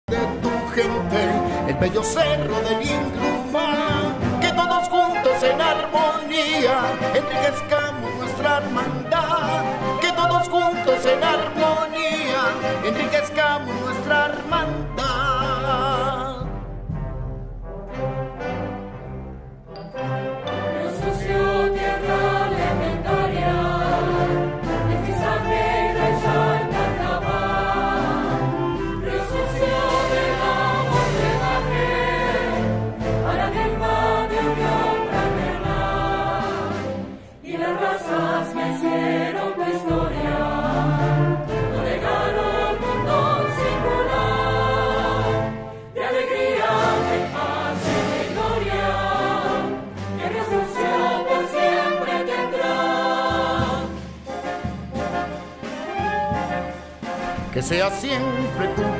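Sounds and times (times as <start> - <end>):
instrumental backing: 0.1 - 58.9
choir singing a slow hymn: 20.7 - 54.1.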